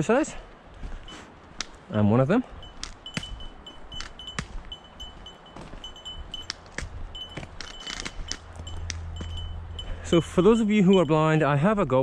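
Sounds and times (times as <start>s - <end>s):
footsteps on gravel: 0.8s - 1.9s, 2.6s - 11.3s
small collar bell jingling: 2.6s - 11.5s.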